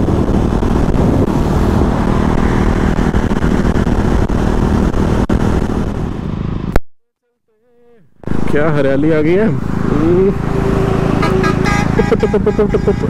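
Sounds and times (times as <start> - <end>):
motorcycle engine cruising: 0.0 - 6.8, 8.2 - 13.0
wind rushing over microphone: 0.0 - 6.8.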